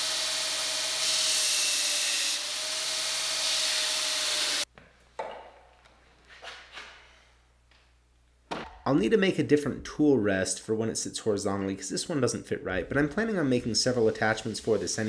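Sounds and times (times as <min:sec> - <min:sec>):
hiss of steel grinding: 0:00.0 - 0:04.6, 0:13.8 - 0:15.0.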